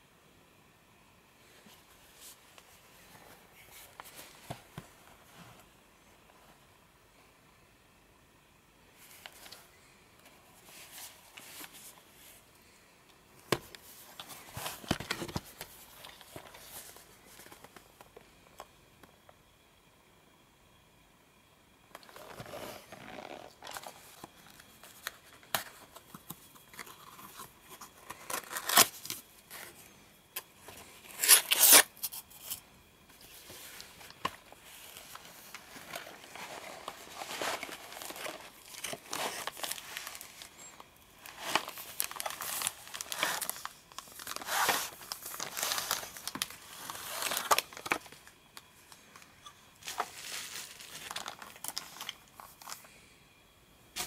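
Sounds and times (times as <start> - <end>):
cardboard tearing and scraping: 28.0 - 29.6, 31.1 - 31.9, 35.8 - 40.3, 41.2 - 48.0
plastic bag crinkling: 34.0 - 48.3, 49.8 - 52.8.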